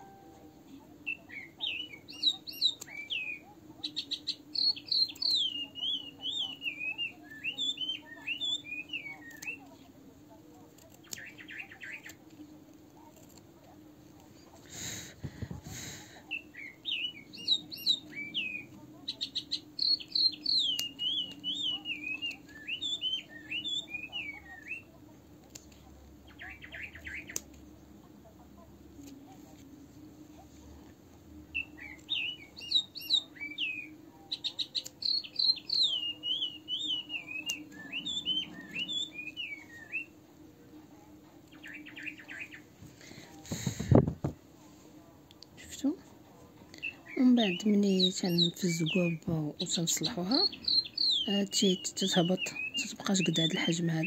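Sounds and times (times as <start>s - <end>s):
songbird singing: 0.0s - 9.7s, 11.0s - 12.2s, 16.3s - 24.9s, 26.1s - 27.5s, 31.4s - 42.8s, 46.7s - 54.0s
faint low hum: 0.0s - 54.0s.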